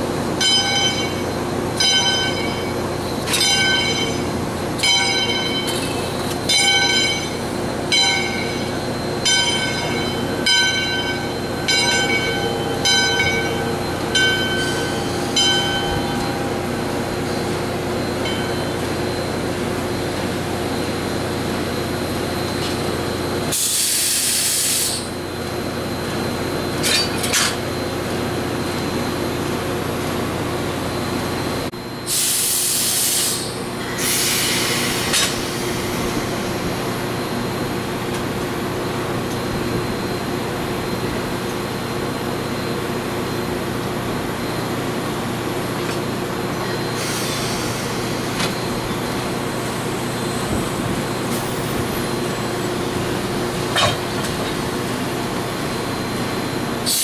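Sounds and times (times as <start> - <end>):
steam locomotive hissing: 22.9 - 25.2, 32.0 - 37.2, 46.6 - 55.9, 56.6 - 57.0
loud bursts of hissing: 23.5 - 25.0, 32.1 - 36.0.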